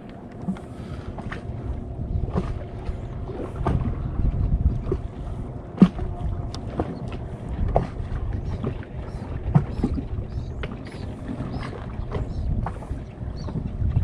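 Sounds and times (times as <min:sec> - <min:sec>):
water against hull: 0:00.0 - 0:14.0
wind on microphone: 0:00.0 - 0:14.0
knocks on boat: 0:03.6 - 0:04.0, 0:05.8 - 0:08.8.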